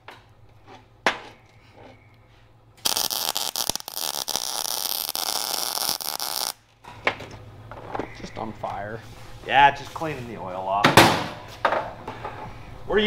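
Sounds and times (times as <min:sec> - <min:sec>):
welding arc crackling hiss: 0:02.8 - 0:06.6.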